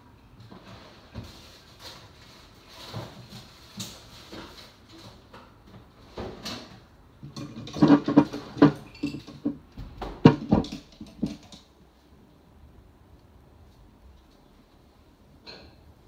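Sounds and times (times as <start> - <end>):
pencils rattling in a pencil pot: 7.2 - 11.7.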